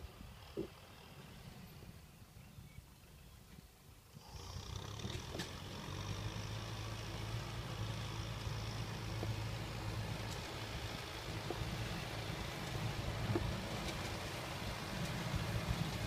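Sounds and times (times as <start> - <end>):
tractor engine droning: 4.1 - 16.0.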